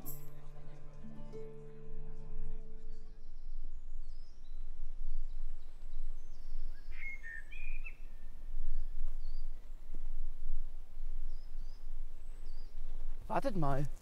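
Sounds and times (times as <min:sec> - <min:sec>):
birds chirping: 0:00.0 - 0:14.0
steady low rumble: 0:02.1 - 0:14.0.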